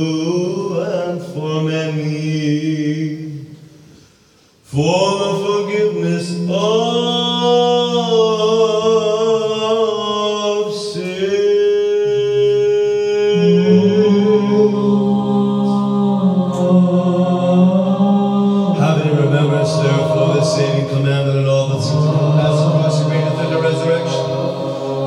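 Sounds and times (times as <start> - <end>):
voices chanting long slow notes: 6.4 - 25.0
low held drone note: 13.2 - 25.0.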